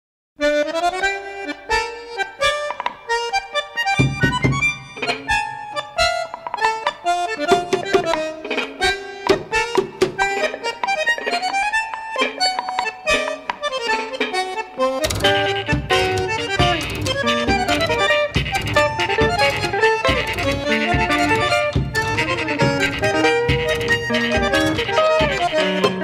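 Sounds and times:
quick accordion melody: 0:00.4 - 0:26.0.

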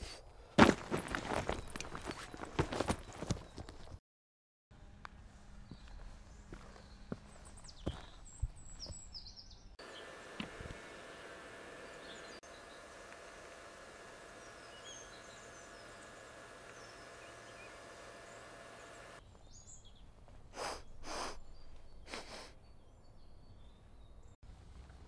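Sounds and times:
birds chirping: 0:00.6 - 0:04.0, 0:05.0 - 0:24.4
faint hum: 0:04.8 - 0:19.4
steady hiss: 0:09.8 - 0:19.2.

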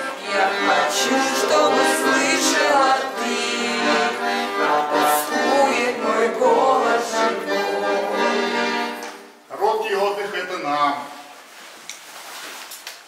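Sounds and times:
accordion music: 0:00.0 - 0:09.5.

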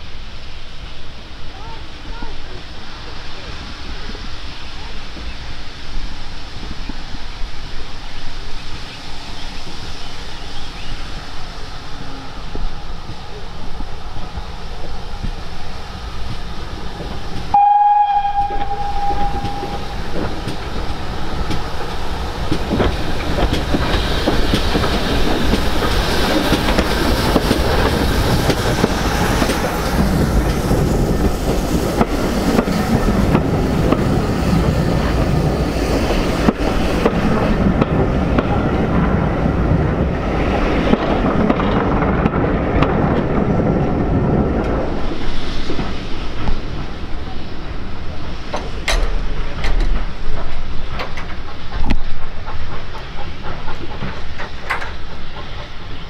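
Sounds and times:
train wheels rumbling and clicking: 0:00.0 - 0:56.0
steam whistle blast: 0:17.5 - 0:20.3.

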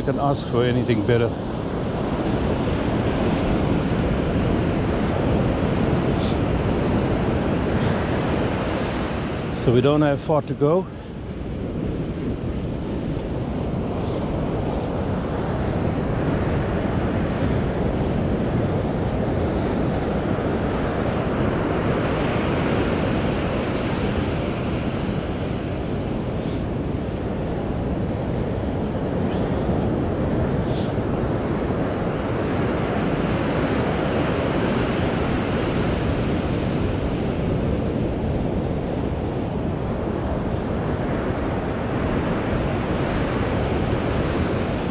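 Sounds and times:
ocean surf breaking on beach: 0:00.0 - 0:44.9
wind buffeting microphone: 0:00.0 - 0:44.9.

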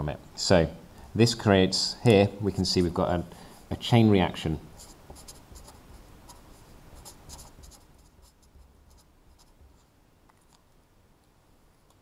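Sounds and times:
marker writing on paper: 0:04.8 - 0:09.8.

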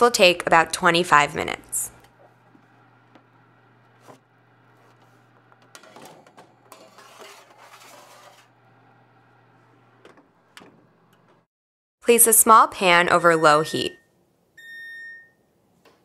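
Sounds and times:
baking sheet scraping on oven rack: 0:03.7 - 0:11.5
oven door clicking shut: 0:10.0 - 0:11.4.

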